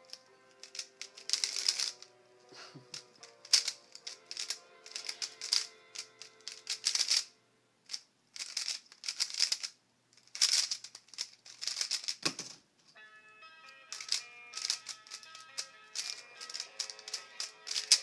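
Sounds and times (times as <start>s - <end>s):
puzzle cube clicking: 0.0s - 7.3s, 7.9s - 12.6s, 13.9s - 18.0s
background music: 0.0s - 7.8s, 12.9s - 18.0s.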